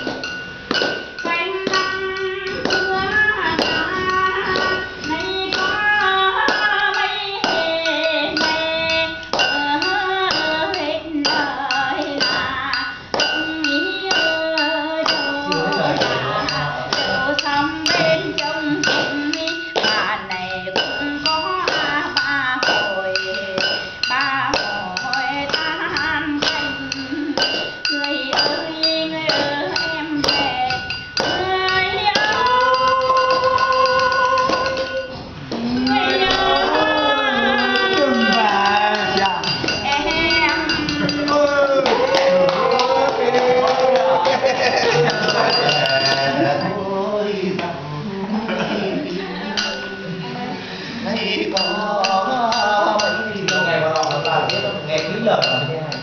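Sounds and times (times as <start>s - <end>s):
taps keeping time: 0.0s - 46.8s
woman singing folk song: 1.2s - 15.7s, 17.1s - 43.6s.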